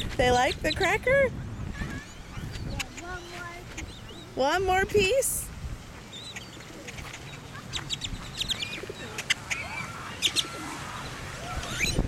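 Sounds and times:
grackles calling: 1.8 - 5.1, 6.1 - 12.0.

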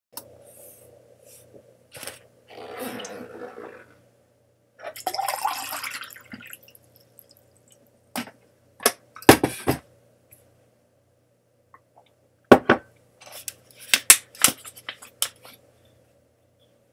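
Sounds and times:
water pouring into a glass: 5.0 - 7.8.

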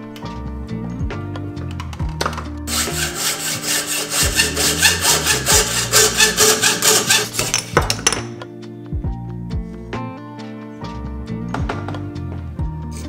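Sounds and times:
hand saw rasping: 2.7 - 7.6.

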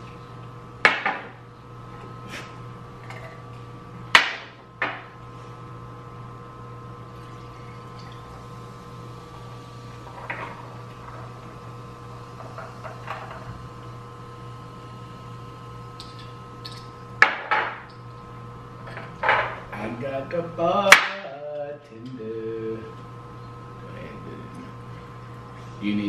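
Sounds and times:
glass clunking on tabletop: 17.2 - 17.8.

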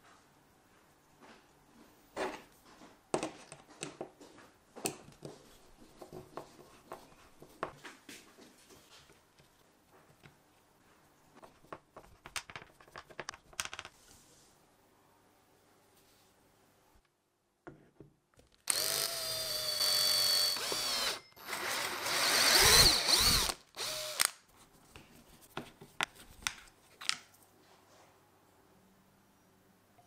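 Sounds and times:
clicks and taps of small parts: 11.7 - 13.9.

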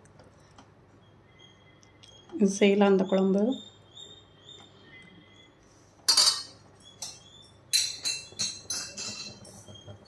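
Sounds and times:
metal ladle clinking on pot: 6.1 - 9.5.

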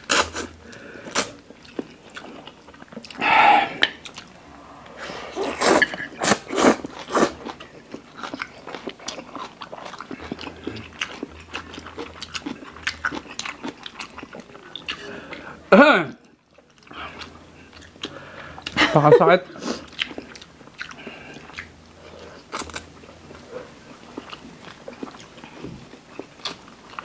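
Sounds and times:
noodle slurping: 5.0 - 7.4
wet chewing clicks: 5.8 - 15.1.

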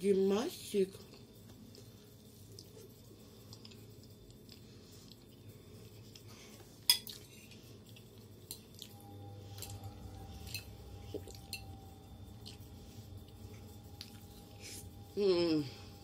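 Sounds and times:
fork clinking on ceramic bowl: 10.3 - 11.8.

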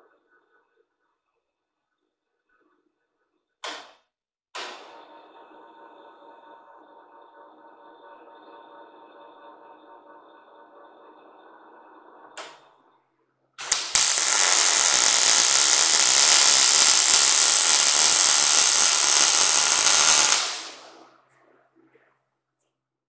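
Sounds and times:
welding arc crackling: 13.6 - 21.0.

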